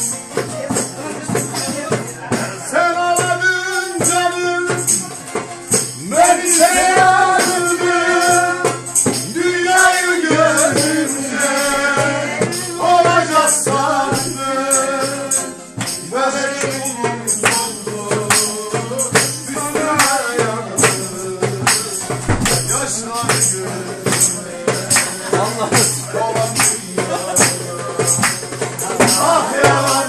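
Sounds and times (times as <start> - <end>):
plucked string instrument: 0.0 - 16.3, 18.3 - 29.4
folk singing: 0.0 - 30.0
hand claps: 24.9 - 25.2, 26.6 - 26.8, 28.1 - 28.6.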